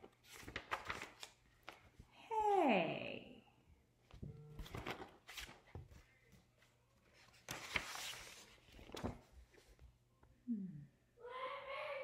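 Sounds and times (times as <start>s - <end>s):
book pages turning: 0.0s - 2.0s, 4.6s - 9.8s
paper rustling: 0.0s - 2.1s, 4.6s - 10.0s.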